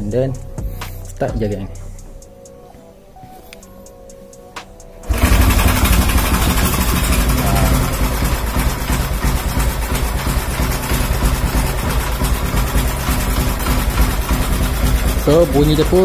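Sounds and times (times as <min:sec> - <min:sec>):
motorcycle engine idling: 0:05.0 - 0:16.0.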